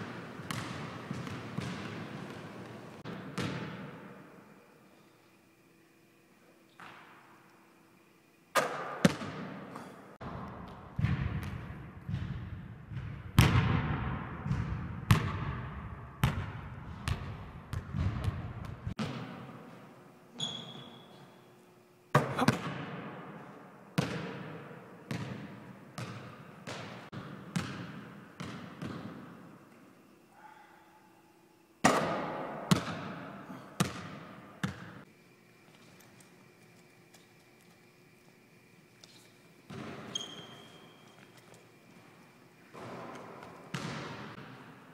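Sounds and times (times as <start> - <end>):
basketball bouncing on hardwood floor: 0.1 - 2.4, 3.1 - 3.8, 25.1 - 29.1, 33.8 - 34.9, 43.7 - 44.4.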